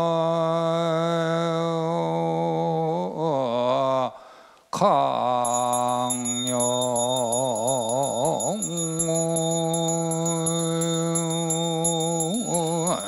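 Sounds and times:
low voice chanting: 0.0 - 13.0
handbell ringing rapidly: 5.4 - 13.0.

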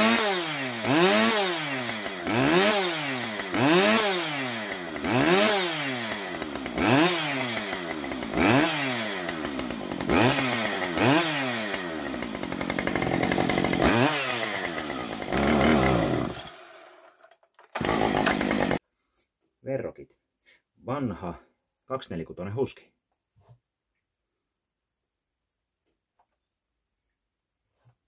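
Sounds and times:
chainsaw engine revving: 0.0 - 18.8.

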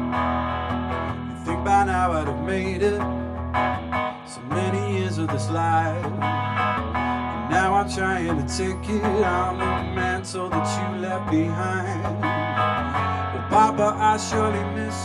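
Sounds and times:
electric guitar strumming: 0.0 - 15.0
man singing: 1.3 - 3.2, 4.2 - 6.2, 7.3 - 15.0.

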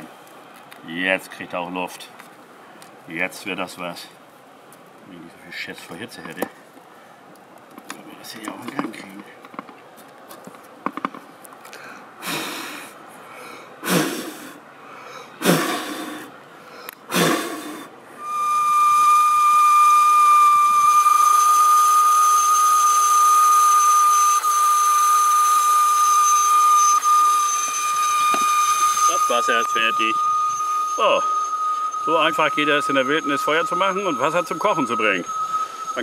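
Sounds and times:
steam hissing: 12.2 - 13.0, 13.8 - 14.6, 15.4 - 16.3, 17.1 - 36.0
kettle whistling: 18.2 - 36.0.

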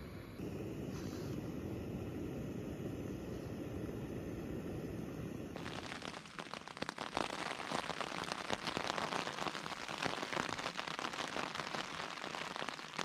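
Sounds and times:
rain falling: 5.6 - 13.0.

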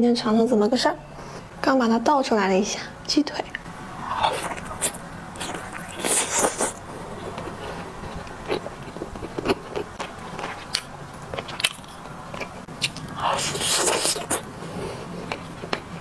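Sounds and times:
biting and chewing: 4.0 - 16.0.

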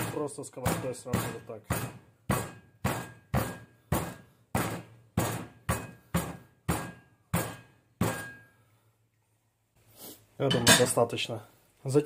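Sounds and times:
pan pounding meat on wooden board: 0.0 - 8.4.

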